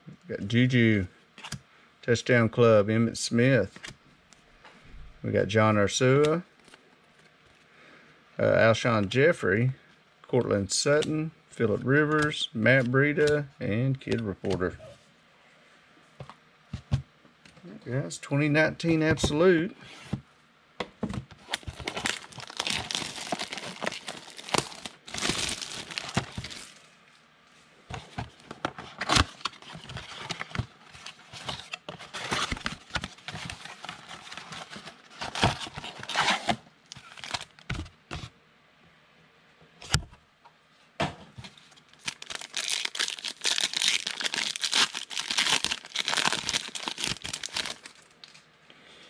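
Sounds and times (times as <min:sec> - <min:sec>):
cardboard box rustling and crackling: 0:21.4 - 0:26.7, 0:28.0 - 0:37.8, 0:42.0 - 0:48.0
foil wrapper crinkling and tearing: 0:21.4 - 0:26.8, 0:31.2 - 0:37.8, 0:41.9 - 0:48.4.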